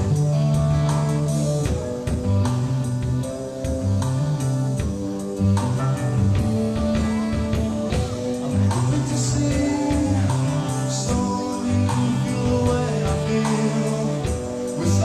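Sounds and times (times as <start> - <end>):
bass line: 0.0 - 15.0
drum kit beat: 0.0 - 15.0
electric guitar: 0.0 - 15.0.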